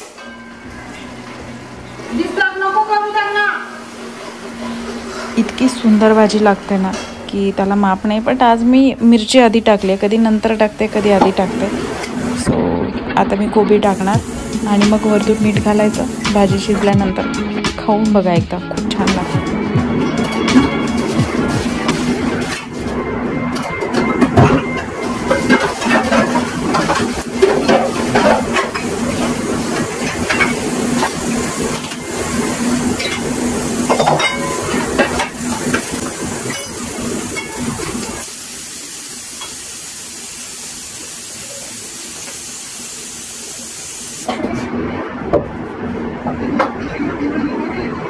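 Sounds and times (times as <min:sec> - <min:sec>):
steady hiss: 0:13.8 - 0:16.9, 0:25.1 - 0:44.3
pots and pans clattering: 0:23.6 - 0:38.2.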